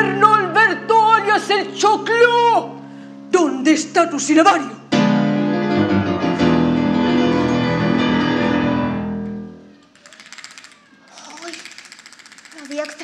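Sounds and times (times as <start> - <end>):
piano chords ringing: 0.0 - 9.7
fast repeated rattling strokes: 9.9 - 13.0.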